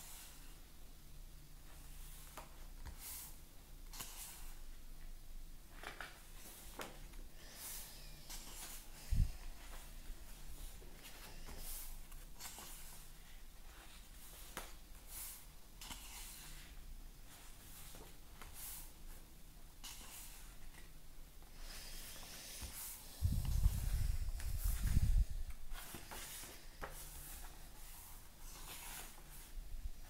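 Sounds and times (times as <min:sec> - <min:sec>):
pages turning: 0:05.7 - 0:07.1.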